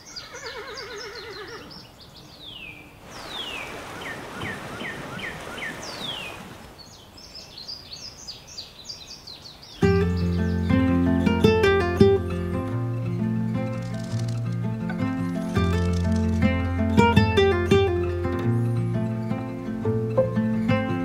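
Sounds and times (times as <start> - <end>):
birds chirping: 0.0 - 21.0
horse whinnying: 0.2 - 1.8
flowing creek water: 3.0 - 7.8.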